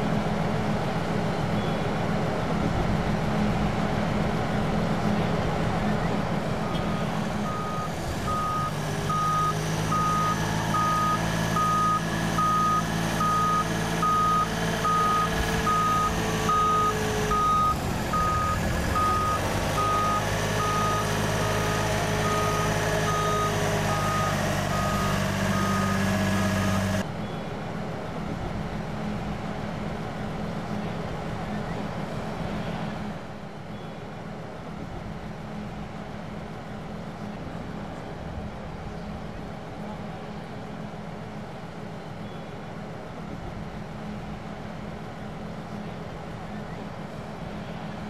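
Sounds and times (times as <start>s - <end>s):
vehicle engine humming: 0.0s - 33.6s
reversing alarm beeping: 6.7s - 27.0s.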